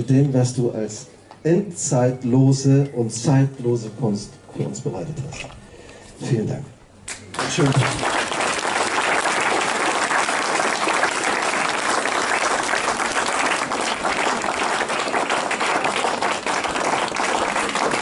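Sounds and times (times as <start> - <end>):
audience applauding: 7.1 - 18.0.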